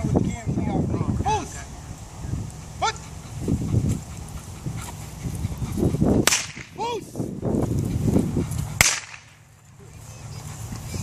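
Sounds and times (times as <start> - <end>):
sharp crack: 6.2 - 6.8, 8.8 - 9.4.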